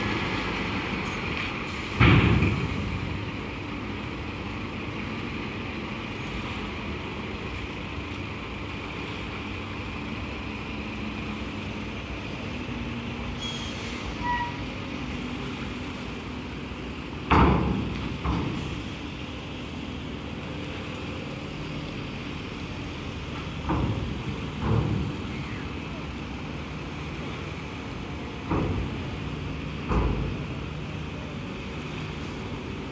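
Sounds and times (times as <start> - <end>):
cars driving off steel ramp: 0.0 - 7.8, 8.4 - 32.9
diesel engine hum: 0.0 - 32.9
heavy clunks of wheels on ramp: 17.2 - 18.8, 23.4 - 25.3.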